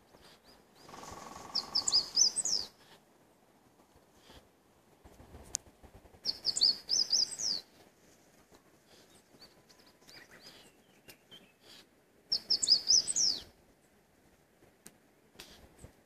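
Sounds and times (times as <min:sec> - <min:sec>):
soft bird calls: 0:00.0 - 0:03.0, 0:06.2 - 0:07.8, 0:08.8 - 0:14.0, 0:15.4 - 0:16.0
songbird singing: 0:00.0 - 0:03.0, 0:06.2 - 0:07.8, 0:08.8 - 0:14.0.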